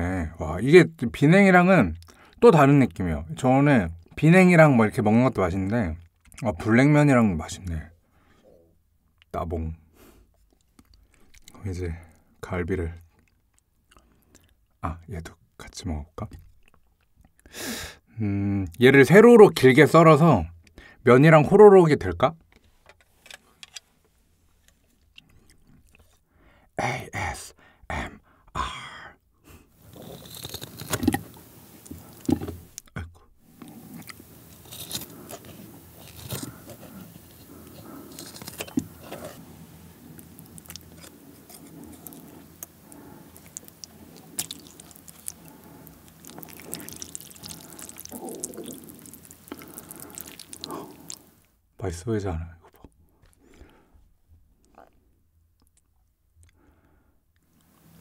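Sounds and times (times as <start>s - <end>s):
scissors snipping through ribs: 29.9s - 32.8s, 33.6s - 39.4s, 40.2s - 51.2s.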